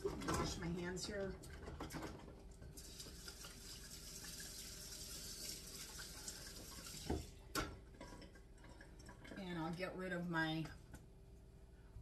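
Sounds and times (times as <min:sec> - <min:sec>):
hands washing under tap: 0:00.0 - 0:07.6
tap water running: 0:00.0 - 0:09.6.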